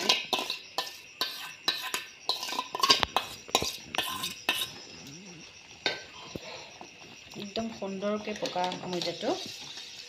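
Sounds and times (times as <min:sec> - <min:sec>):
spoon scraping steel pot: 0:00.0 - 0:05.0, 0:08.2 - 0:10.0.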